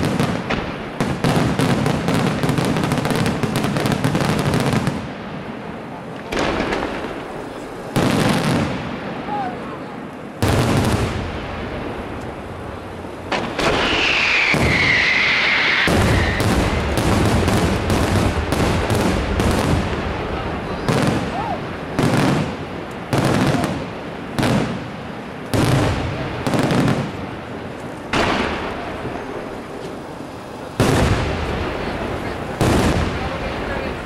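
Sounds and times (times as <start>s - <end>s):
firework cracking bursts: 0.0s - 9.4s, 10.3s - 34.0s
firework heavy bangs: 0.0s - 34.0s
firework whistling: 13.2s - 24.8s.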